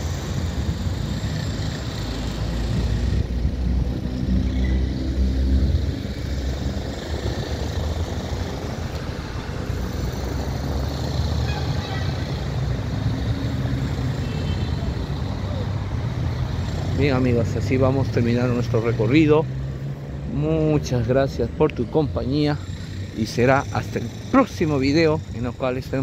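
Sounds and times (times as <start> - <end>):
vehicle engine passing close: 0.0 - 14.0
traffic rumble: 0.0 - 26.0.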